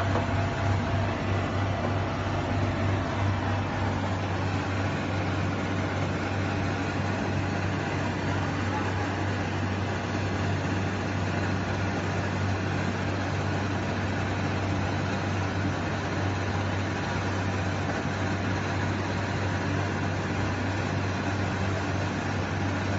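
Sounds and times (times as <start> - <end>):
machinery humming and whirring: 0.0 - 22.9.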